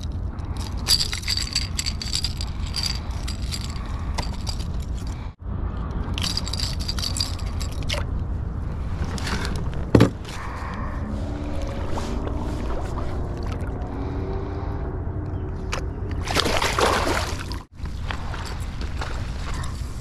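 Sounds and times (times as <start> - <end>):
metal hooks clinking and rattling: 0.0 - 5.3, 6.1 - 8.0
low rumble: 0.0 - 16.3.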